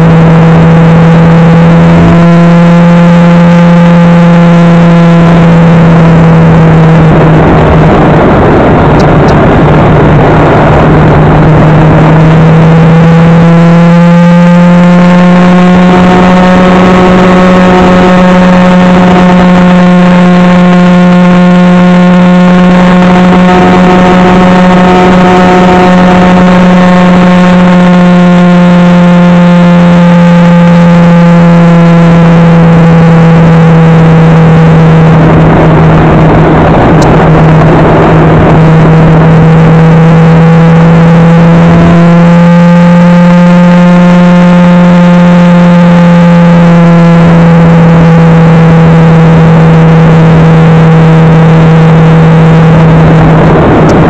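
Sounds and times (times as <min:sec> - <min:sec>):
motorcycle engine droning: 0:00.0 - 0:54.0
wind rush: 0:04.9 - 0:13.5, 0:14.8 - 0:28.6, 0:31.9 - 0:42.1, 0:47.1 - 0:54.0.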